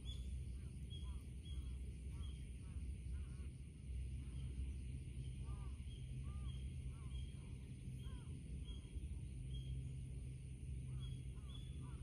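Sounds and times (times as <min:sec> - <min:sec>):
birds calling: 0:00.0 - 0:12.0
low steady rumble: 0:00.0 - 0:12.0.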